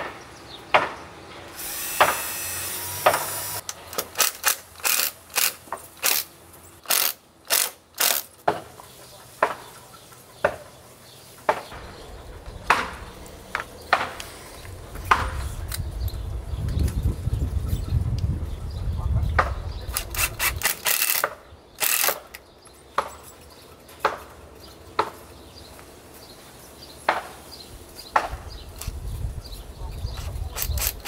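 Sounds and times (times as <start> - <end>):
ratchet wrench strokes: 1.6 - 8.3, 19.9 - 22.3, 30.5 - 31.0.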